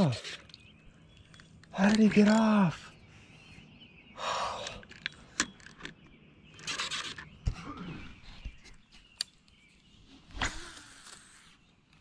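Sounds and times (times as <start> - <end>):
handling clicks and knocks: 0.0 - 2.7, 4.7 - 7.5.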